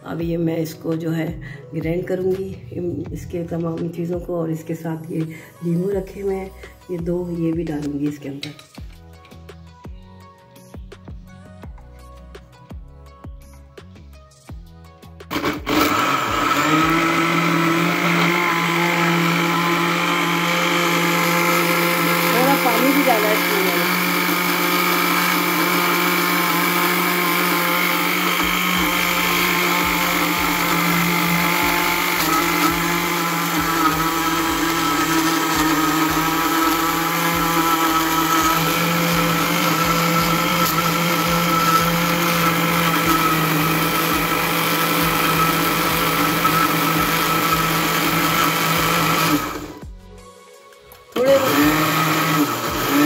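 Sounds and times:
mixer grinder running: 0:15.3 - 0:49.8, 0:51.1 - 0:53.0.

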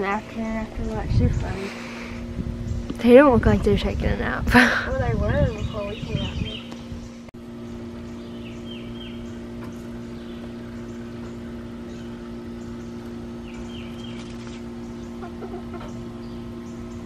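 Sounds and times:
steady low hum: 0:00.0 - 0:17.0
chickens clucking: 0:15.0 - 0:16.2
chicken chirp: 0:15.1 - 0:16.4.

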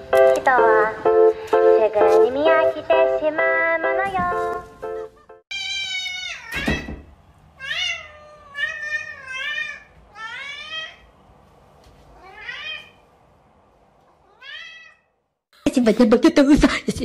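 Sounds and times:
cat meowing: 0:05.5 - 0:06.9, 0:07.6 - 0:11.1, 0:12.1 - 0:13.0, 0:14.2 - 0:15.2.

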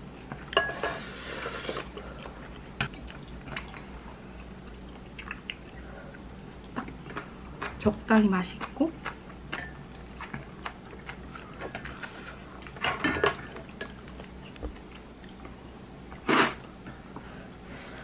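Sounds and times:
person chewing: 0:01.4 - 0:07.8, 0:08.6 - 0:12.8.

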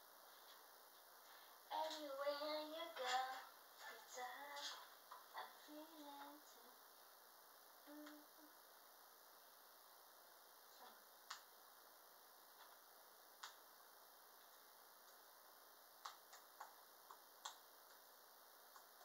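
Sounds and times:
faint clicks: 0:13.4 - 0:13.6.

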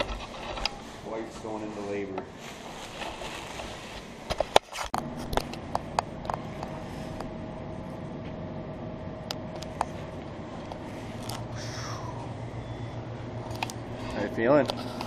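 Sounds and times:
machinery hum with faint whine: 0:00.0 - 0:15.0.

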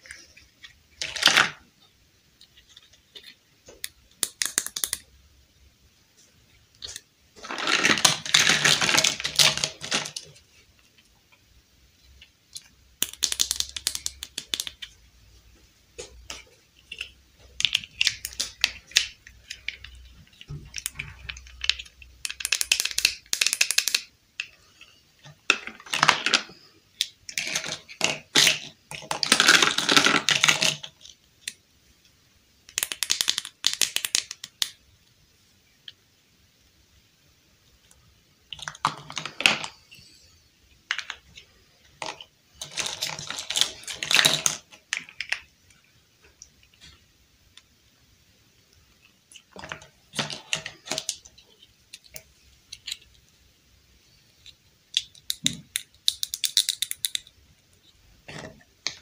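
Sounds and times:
plastic toy pieces clicking: 0:02.4 - 0:05.1, 0:12.5 - 0:14.9, 0:16.8 - 0:24.5, 0:25.5 - 0:31.6, 0:32.7 - 0:34.8, 0:49.3 - 0:53.2, 0:54.4 - 0:57.4.

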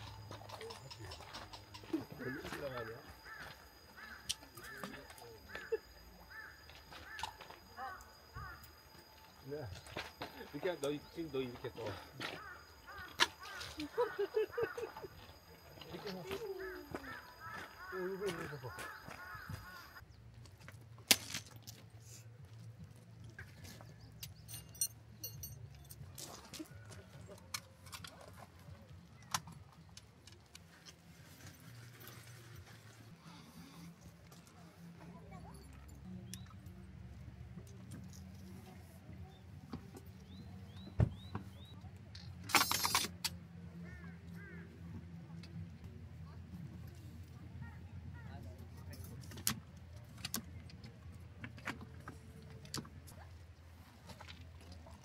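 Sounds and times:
light metallic clinks: 0:24.2 - 0:26.4
metallic jingling rattle: 0:24.4 - 0:26.2.

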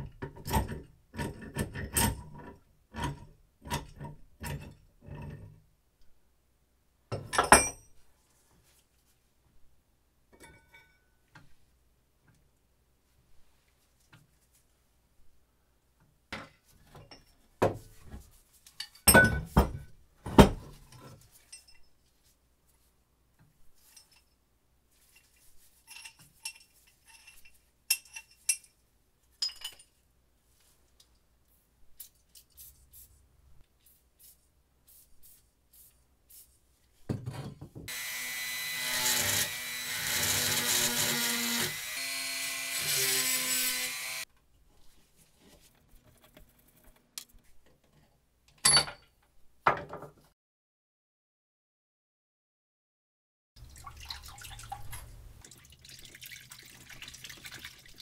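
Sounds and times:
metal vise parts clinking: 0:25.2 - 0:28.8
rotary tool grinding metal: 0:37.9 - 0:44.3.

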